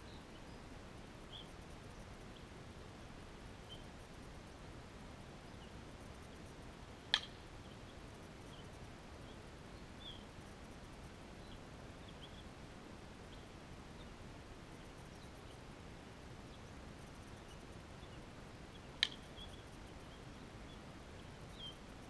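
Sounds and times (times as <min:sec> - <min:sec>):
faint bird chirps: 0:00.0 - 0:00.7, 0:01.3 - 0:02.5, 0:03.6 - 0:04.2, 0:05.4 - 0:10.5, 0:11.4 - 0:12.6, 0:13.2 - 0:15.7, 0:16.4 - 0:22.0.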